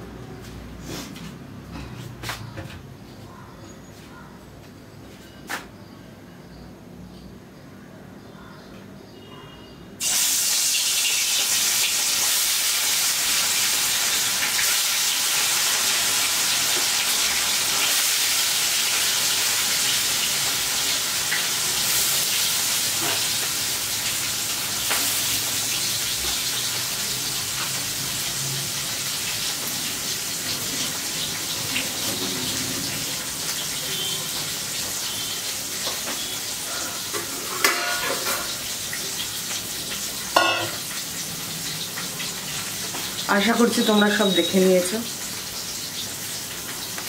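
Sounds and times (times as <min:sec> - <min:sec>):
fish sizzling in hot oil: 0:10.0 - 0:47.0.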